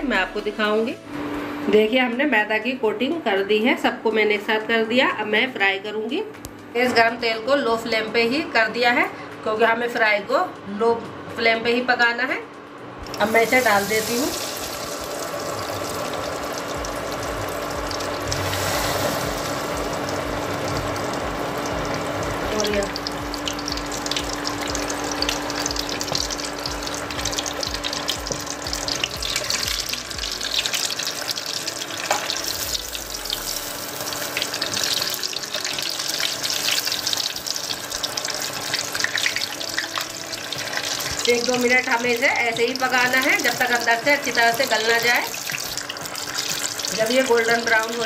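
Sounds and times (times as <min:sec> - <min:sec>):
chicken deep-frying in oil: 0:13.0 - 0:48.0.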